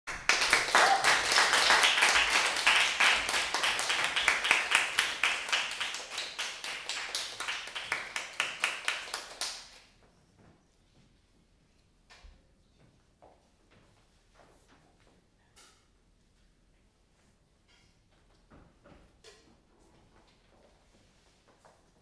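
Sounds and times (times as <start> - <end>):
audience applause: 0.1 - 9.8.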